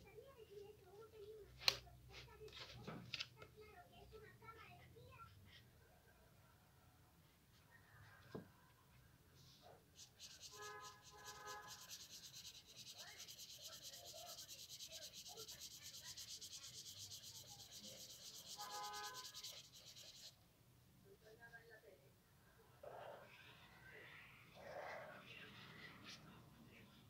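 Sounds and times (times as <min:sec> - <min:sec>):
marker scribbling on paper: 0:10.0 - 0:20.4.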